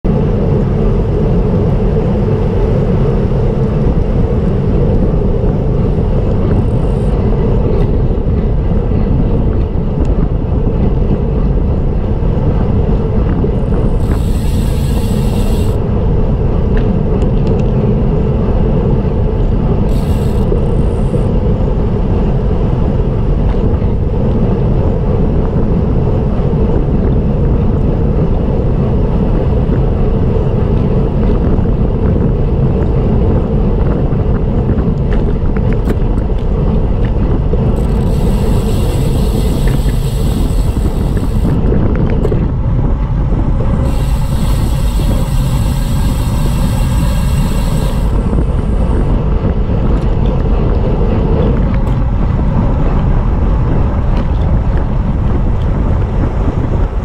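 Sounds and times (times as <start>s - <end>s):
wind and road noise: 0.0s - 57.0s
high hissing bursts: 14.0s - 15.8s, 43.8s - 48.9s.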